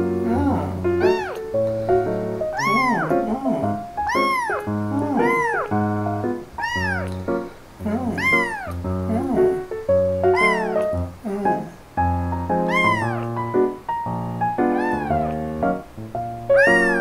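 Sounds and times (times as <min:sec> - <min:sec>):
kitten meowing: 0:00.8 - 0:01.7, 0:02.5 - 0:05.8, 0:06.6 - 0:07.3, 0:08.1 - 0:08.9, 0:10.2 - 0:11.6, 0:12.6 - 0:13.5, 0:14.6 - 0:15.8, 0:16.5 - 0:17.0.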